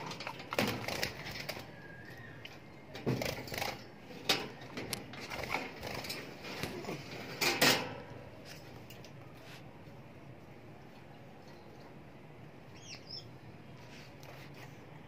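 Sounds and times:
knocks and rattles on birdcage: 0:00.0 - 0:01.7, 0:02.9 - 0:08.2.

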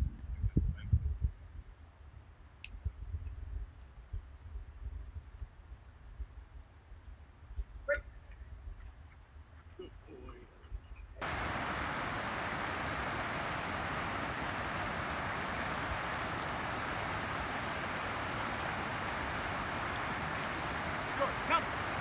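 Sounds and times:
stream rushing over rock: 0:11.2 - 0:22.0.

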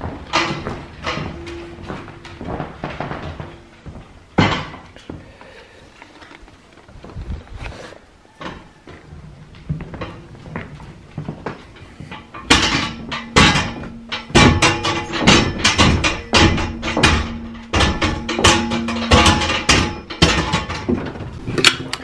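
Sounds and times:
metal frame ringing: 0:00.0 - 0:05.0, 0:11.7 - 0:22.0
hand truck bumping down wooden stairs: 0:00.0 - 0:05.5, 0:08.4 - 0:22.0.

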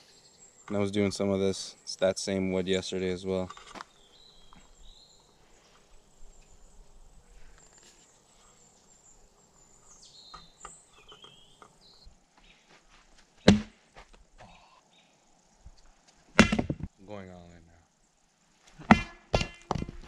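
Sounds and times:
bird chirps: 0:03.4 - 0:12.7
knife striking wood: 0:13.4 - 0:13.8, 0:16.4 - 0:16.9, 0:18.8 - 0:20.0.

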